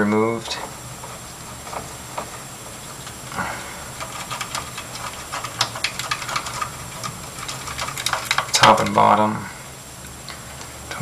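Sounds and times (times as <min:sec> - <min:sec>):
faint steady hum: 0:00.0 - 0:11.0
screws clicking and tapping: 0:04.0 - 0:09.0.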